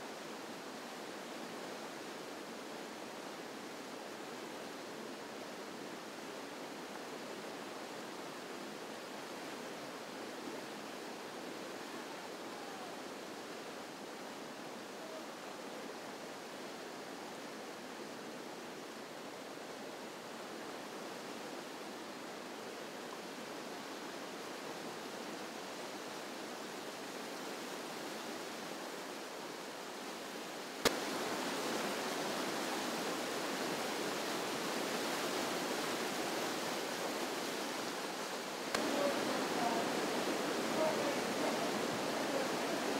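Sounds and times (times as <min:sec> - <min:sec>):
river rapids rushing: 0:00.0 - 0:42.9
rapids rushing: 0:30.1 - 0:42.9.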